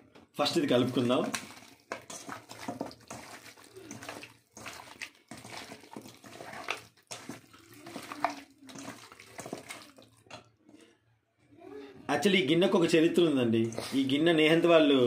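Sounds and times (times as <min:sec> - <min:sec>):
raw meat squelching by hand: 0:00.5 - 0:10.3.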